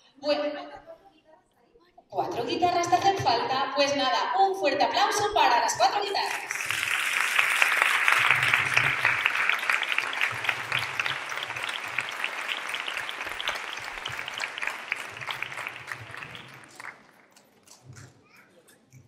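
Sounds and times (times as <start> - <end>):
audience applauding: 6.2 - 17.8.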